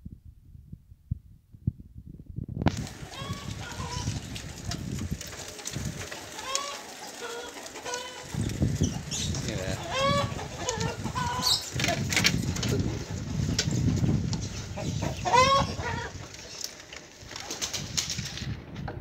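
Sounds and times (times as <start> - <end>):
bicycle rolling over rough concrete: 2.6 - 19.0
chickens clucking: 2.8 - 17.7.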